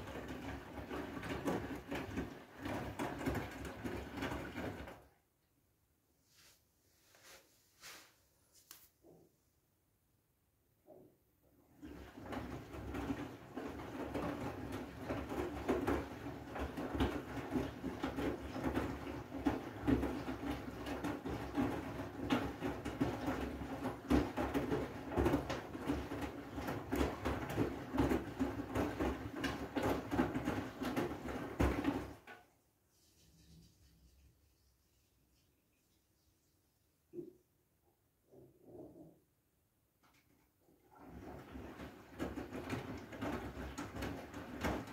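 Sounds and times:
wet laundry sloshing: 0.0 - 5.1, 11.7 - 32.2, 40.8 - 44.9
washing machine drum turning: 11.9 - 32.3, 41.0 - 44.9.

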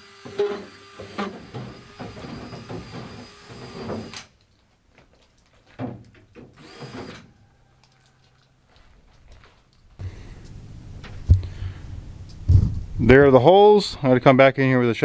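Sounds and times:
cordless drill boring through plastic: 0.0 - 4.3, 6.6 - 7.3.

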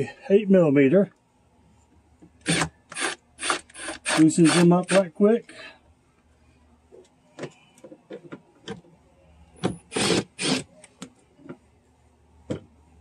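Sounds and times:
cordless drill running: 2.4 - 5.0, 9.9 - 10.6.

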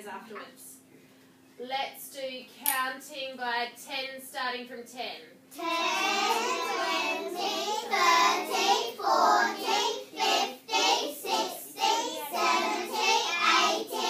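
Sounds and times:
children chanting numbers: 5.6 - 14.0.

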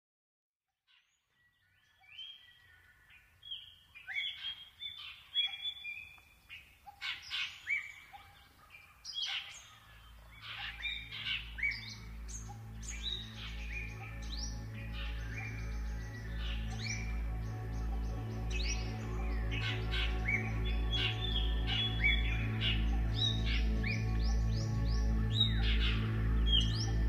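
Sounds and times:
birds chirping and calling: 1.4 - 27.0
low music with pulsing beat: 10.7 - 27.0.

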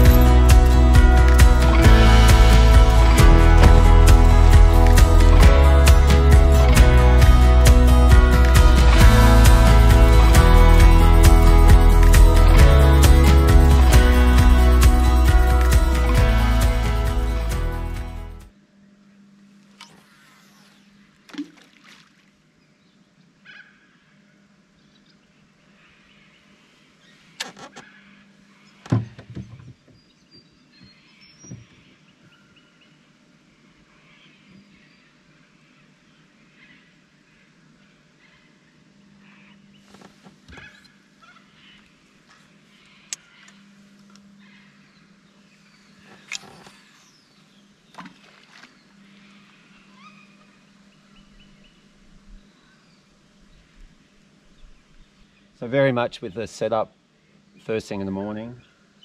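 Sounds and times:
steady low hum: 0.0 - 21.3
birds calling: 25.8 - 37.6, 38.2 - 53.9.

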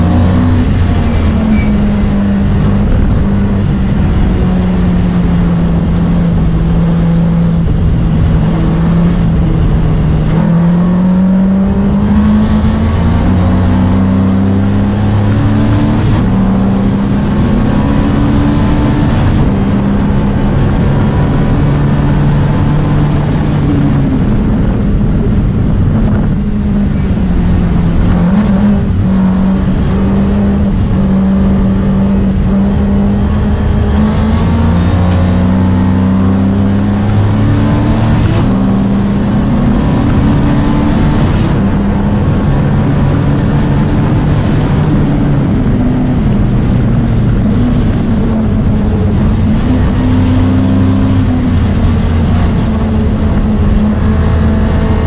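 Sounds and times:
race car engine revving: 0.0 - 55.0.

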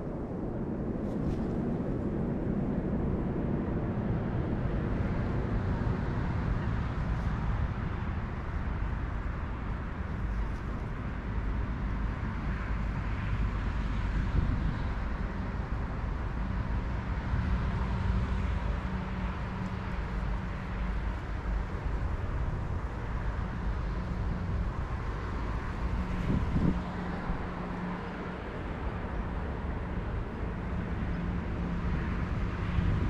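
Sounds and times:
low engine drone: 0.0 - 33.0
distant road traffic rumble: 2.6 - 33.0.

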